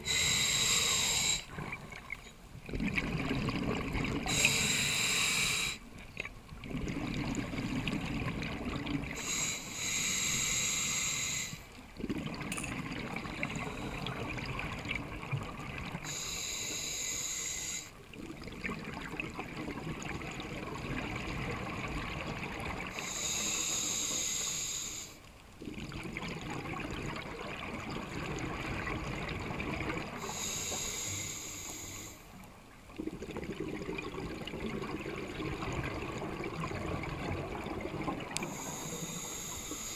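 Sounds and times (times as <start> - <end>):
regulator inhale hissing: 0.0 - 1.5, 4.3 - 5.9, 9.2 - 11.7, 16.0 - 18.0, 22.9 - 25.2, 30.2 - 32.4, 38.4 - 39.9
bubbling exhale: 2.7 - 5.8, 33.0 - 39.9.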